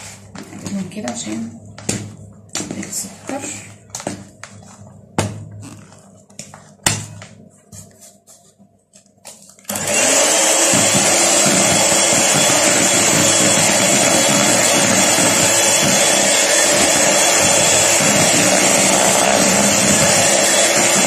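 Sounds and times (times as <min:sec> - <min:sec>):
electric hand mixer running: 0:09.7 - 0:21.0.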